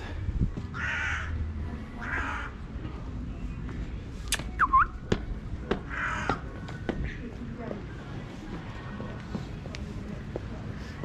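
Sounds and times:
crow cawing: 0.7 - 1.4, 2.0 - 2.6, 5.8 - 6.5
short whistled chirp: 4.3 - 5.0.

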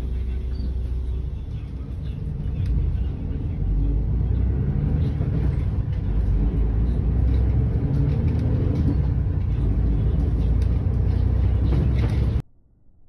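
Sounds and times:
bus engine and road noise: 0.0 - 12.5.

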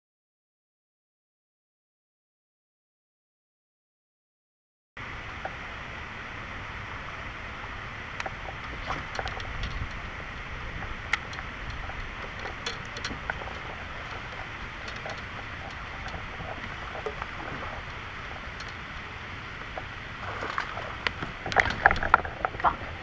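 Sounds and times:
wind and water rushing: 5.0 - 23.0
fish splashing: 8.0 - 23.0
faint clicks: 8.2 - 23.0.

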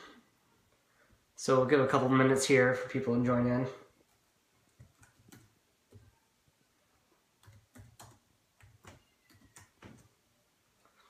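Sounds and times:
typing on computer keyboard: 4.1 - 6.1, 7.4 - 10.1.

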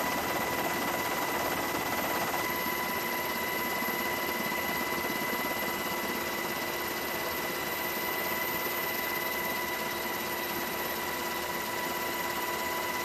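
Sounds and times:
helicopter engine and rotor noise: 0.0 - 13.0.

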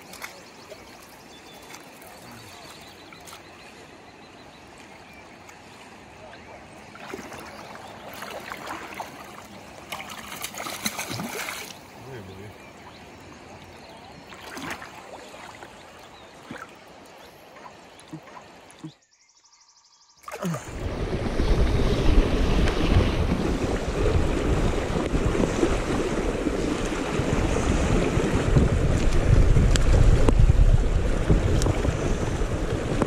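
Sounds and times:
river water rushing: 4.6 - 18.9
wind buffeting microphone: 20.7 - 33.0.

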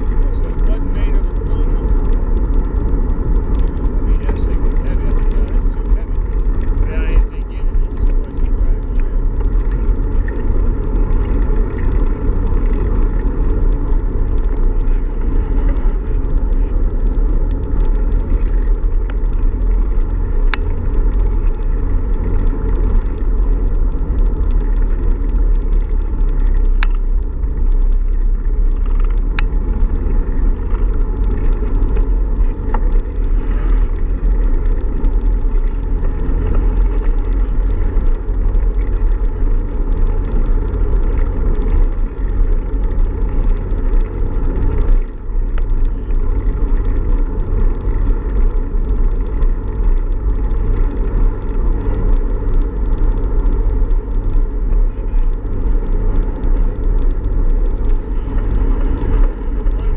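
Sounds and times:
road vibration rumble: 0.0 - 59.9.

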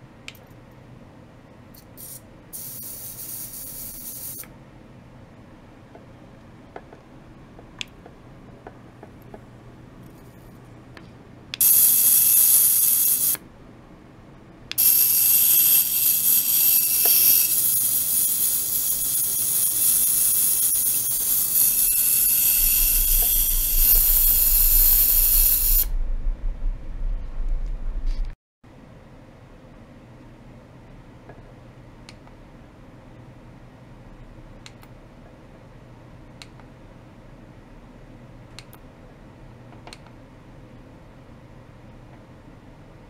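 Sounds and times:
spray bottle hissing: 2.0 - 4.4, 14.8 - 25.9.

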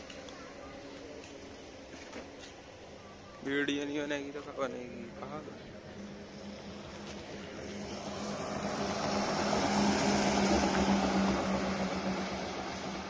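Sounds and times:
steady low hum: 0.0 - 13.0
heavy lorry passing: 2.6 - 13.0.

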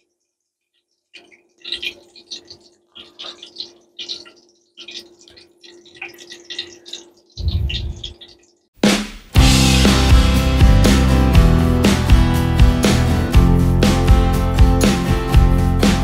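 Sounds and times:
steady low hum: 7.4 - 8.2
music: 8.8 - 16.0.

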